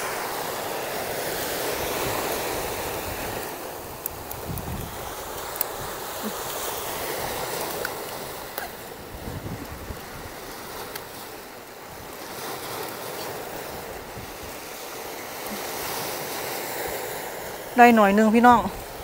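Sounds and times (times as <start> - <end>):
sea waves washing on shore: 0.0 - 19.0
wind buffeting microphone: 1.6 - 16.0.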